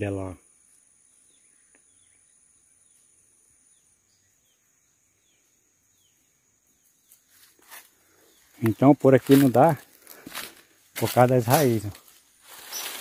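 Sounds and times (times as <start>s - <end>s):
steady high insect buzz: 0.0s - 13.0s
soft falling chirps: 12.0s - 13.0s.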